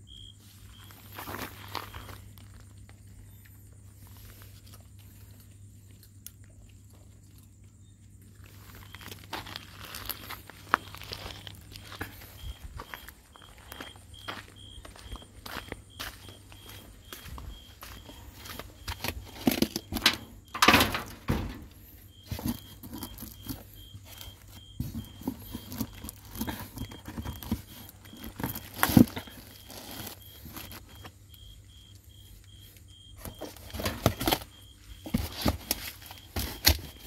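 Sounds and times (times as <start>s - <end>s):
objects and plastic being handled: 16.6s - 31.6s, 32.2s - 37.0s.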